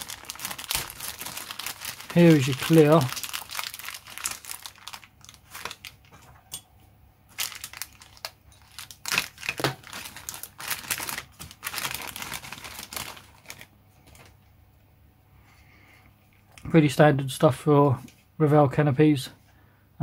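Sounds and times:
plastic bag crinkling: 0:00.0 - 0:06.4, 0:07.3 - 0:14.5.

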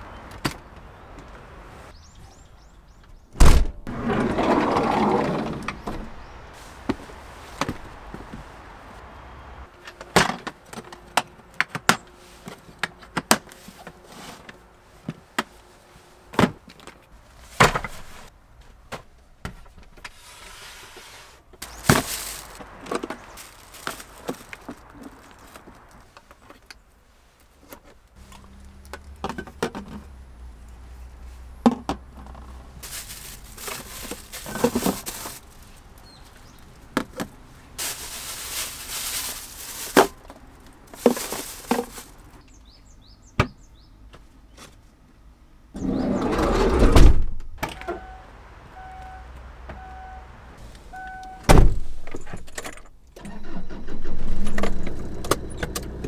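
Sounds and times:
plastic bag crinkling: 0:21.6 - 0:26.0, 0:32.8 - 0:36.0, 0:37.8 - 0:42.4.

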